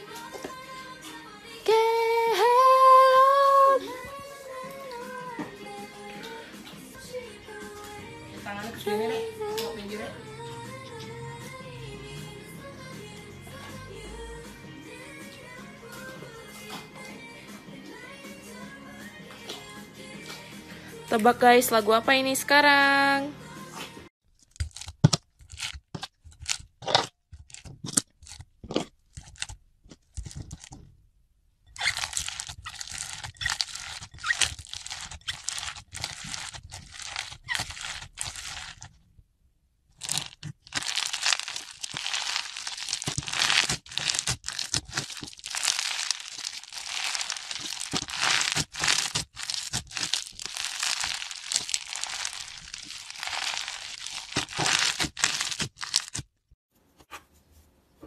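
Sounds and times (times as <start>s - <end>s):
foam beads crunching and crackling: 24.5s - 30.7s, 31.8s - 38.9s, 40.0s - 56.3s.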